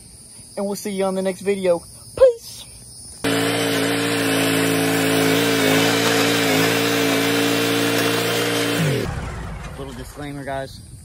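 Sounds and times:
lawn mower engine running: 3.2s - 10.3s.

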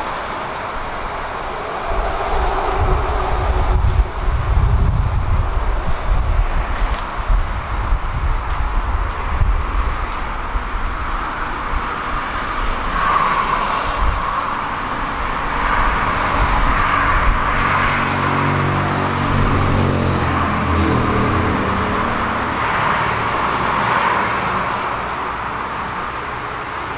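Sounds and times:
cars passing at speed: 0.0s - 26.9s.

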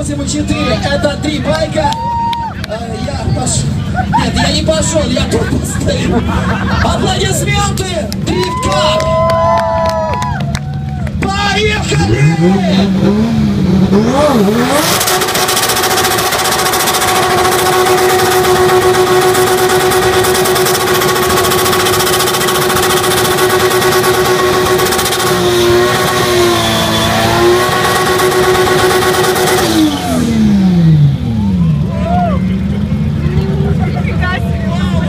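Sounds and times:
car engine revving high: 11.6s - 33.8s.

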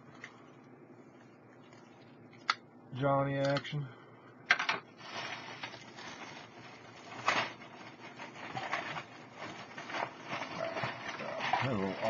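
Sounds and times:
plastic bag crinkling: 5.0s - 12.0s
plastic pieces rummaged: 5.0s - 12.0s.

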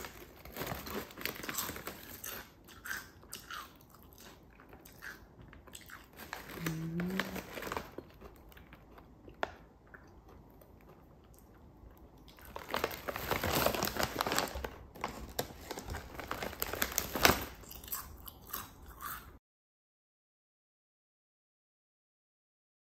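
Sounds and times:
foil bags crinkling: 0.0s - 2.5s, 6.1s - 8.8s, 12.3s - 17.7s
potato chips crunching: 0.0s - 19.3s.

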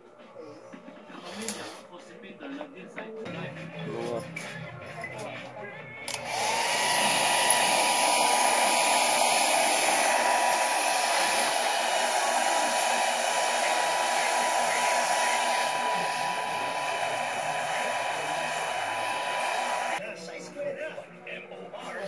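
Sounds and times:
hair dryer blowing: 6.1s - 20.0s.

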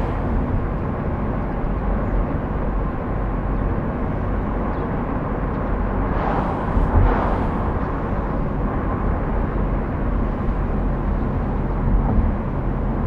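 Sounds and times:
car engine rumble: 0.0s - 13.0s
vehicle passing: 5.8s - 10.8s.

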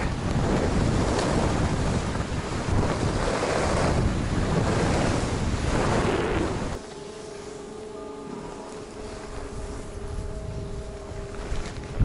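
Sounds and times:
wind rushing over microphone: 0.0s - 6.8s.

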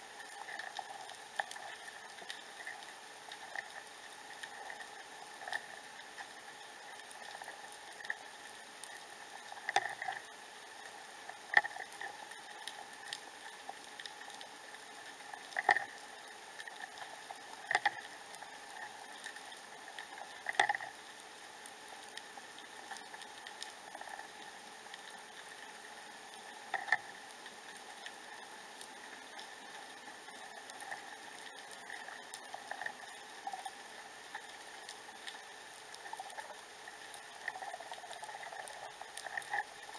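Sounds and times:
underwater bubbling hiss: 0.0s - 39.9s.

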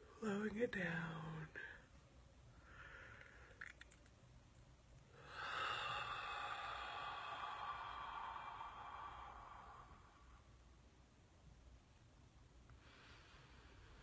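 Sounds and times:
slow breath out through nose: 5.2s - 10.5s.

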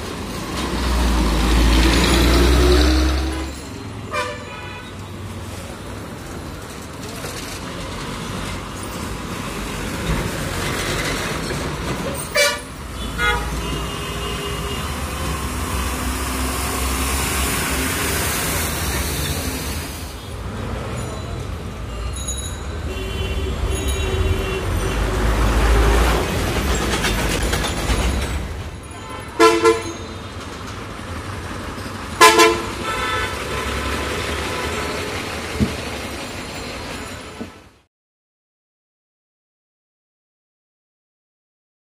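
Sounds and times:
street traffic: 0.0s - 37.9s
trucks passing with engine rumble: 0.0s - 37.9s
vehicle horn toots: 3.3s - 5.0s, 12.4s - 15.3s, 22.9s - 25.2s, 29.0s - 30.1s, 32.2s - 33.8s.

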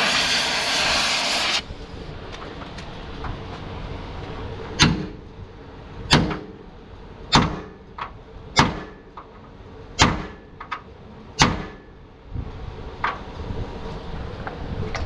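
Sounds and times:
sledgehammer striking steel: 4.8s - 5.2s, 6.1s - 6.6s, 7.3s - 7.8s, 8.5s - 9.1s, 10.0s - 10.5s, 11.4s - 11.9s.

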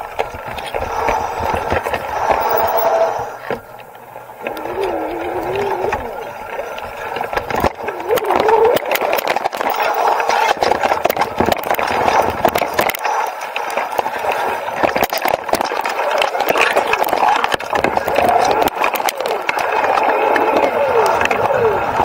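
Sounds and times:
electric bike motor whine: 0.0s - 12.2s
bike rattling over bumps: 0.0s - 22.0s.

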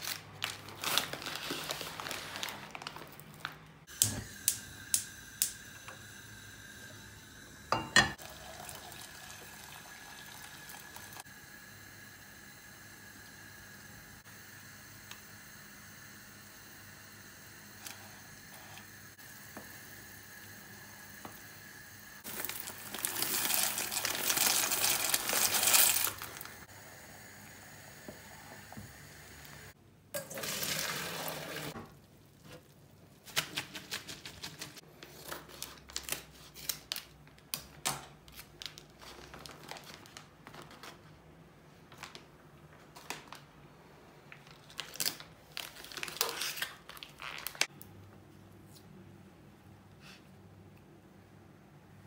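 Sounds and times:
plastic bag crinkling: 0.0s - 3.8s, 22.2s - 26.6s, 38.3s - 41.1s, 44.3s - 47.7s
water boiling in a pot: 3.9s - 32.4s.

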